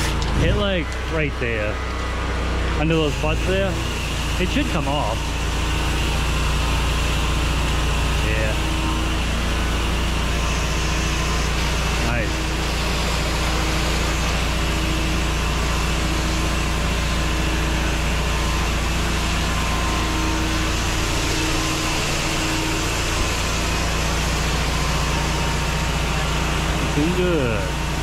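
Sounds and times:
pressure washer engine hum: 0.0 - 28.0.

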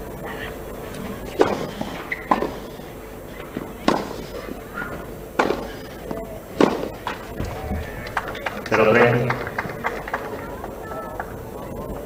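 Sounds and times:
tennis ball hit by rackets: 1.4 - 2.7, 3.6 - 5.9, 6.6 - 9.2.

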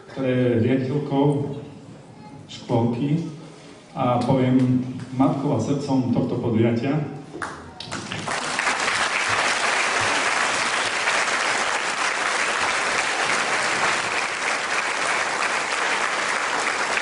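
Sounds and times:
audience applauding: 7.8 - 17.0.

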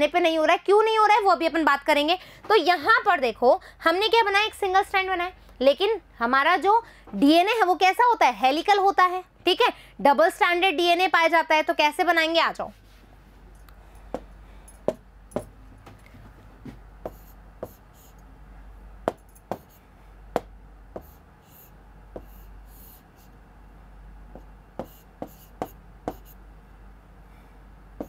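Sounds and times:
pen scratching strokes: 17.1 - 18.2, 19.5 - 19.8, 21.0 - 23.4, 24.8 - 26.4.

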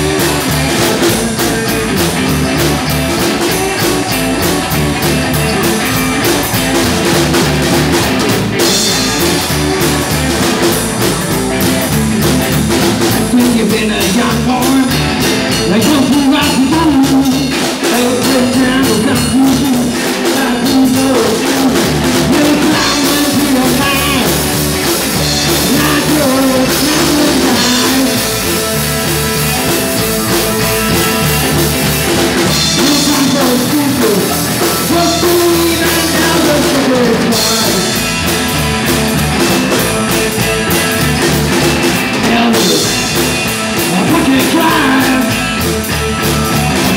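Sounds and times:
man singing into a microphone: 0.0 - 2.3, 13.2 - 24.4, 25.2 - 28.3, 32.5 - 38.0, 42.2 - 43.0, 43.8 - 45.5
drum kit: 0.0 - 46.9
electric guitar: 0.0 - 46.9
upright double bass: 0.0 - 46.9.

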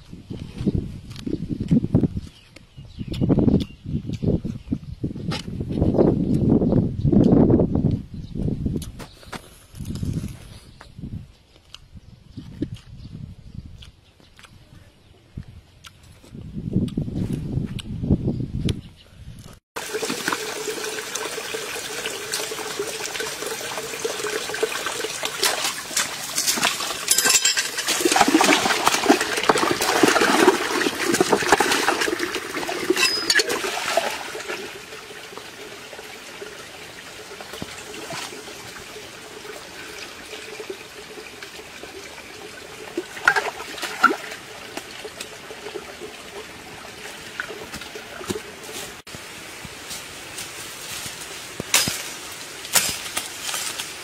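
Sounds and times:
water sloshing and trickling: 19.8 - 49.2.

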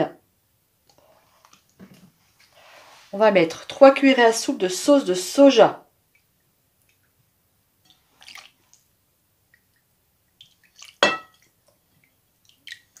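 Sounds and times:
metal spoon clinking glass bowl: 11.0 - 11.4.

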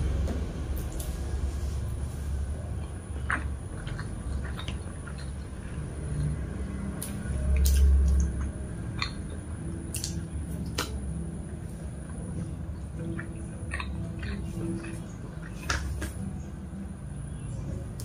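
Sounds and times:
person chewing: 2.6 - 11.0, 12.9 - 16.2.

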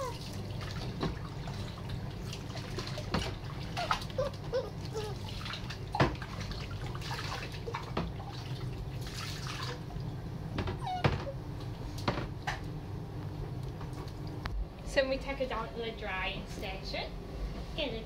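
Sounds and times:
water pouring and splashing: 0.0 - 10.1
steady low hum: 0.0 - 18.0.

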